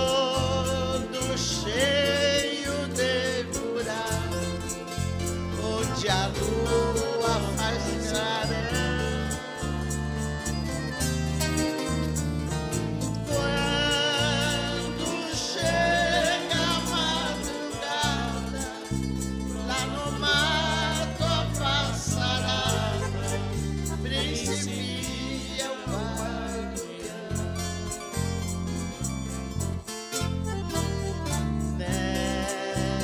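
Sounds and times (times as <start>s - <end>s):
acoustic guitar: 0.0s - 33.0s
electric bass: 0.0s - 33.0s
woman singing with vibrato: 19.8s - 25.7s
ten-string viola: 30.2s - 32.1s.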